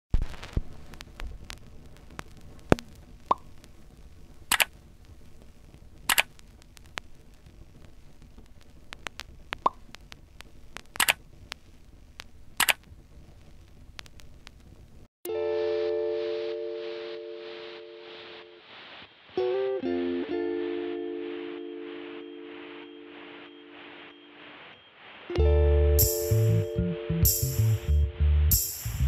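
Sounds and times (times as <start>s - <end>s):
faint steady hiss: 0.1s - 29.0s
small clicks and taps: 6.1s - 7.1s.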